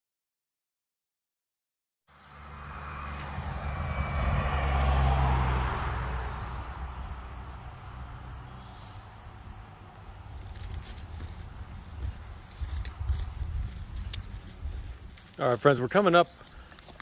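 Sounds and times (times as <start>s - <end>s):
car passing by: 2.1s - 12.3s.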